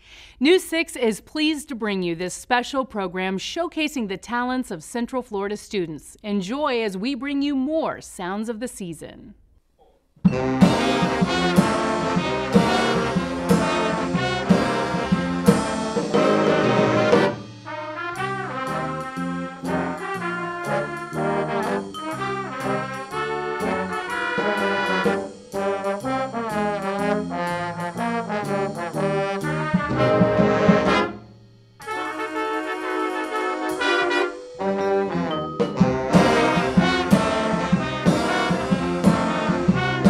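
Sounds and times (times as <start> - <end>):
jazz big band playing: 10.2 - 40.0
trombones and trumpets: 10.2 - 40.0.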